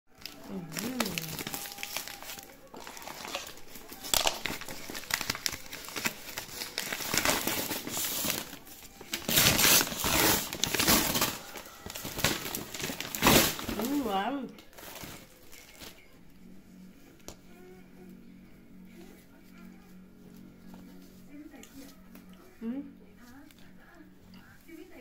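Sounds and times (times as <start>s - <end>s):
paper crinkling and rustling: 0.1s - 16.2s.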